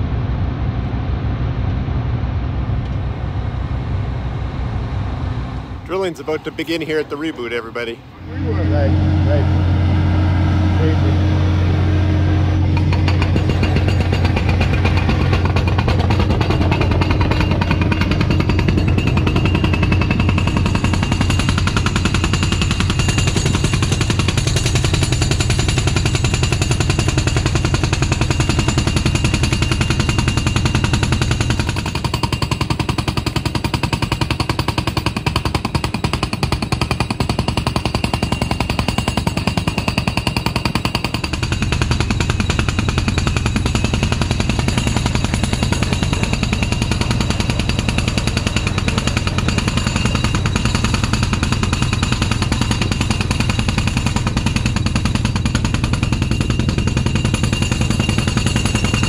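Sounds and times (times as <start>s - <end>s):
generator engine drone: 0.0s - 59.0s
rock drill hammering: 12.5s - 59.0s.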